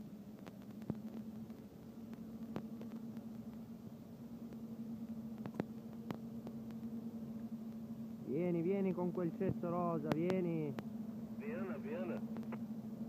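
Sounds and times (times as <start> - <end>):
locomotive electric hum: 0.0 - 13.0.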